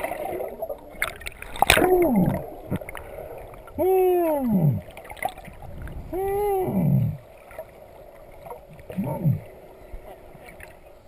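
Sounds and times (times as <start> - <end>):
muffled underwater hooting calls: 3.6 - 5.1, 6.1 - 7.4, 8.4 - 10.7.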